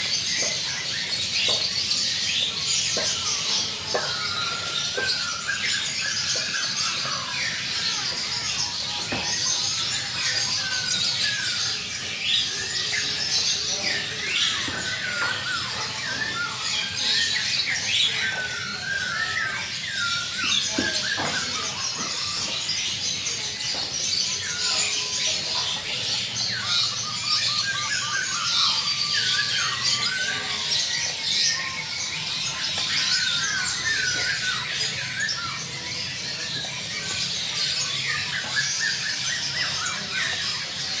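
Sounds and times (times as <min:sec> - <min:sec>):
birds chirping and whistling: 0:00.0 - 0:41.0.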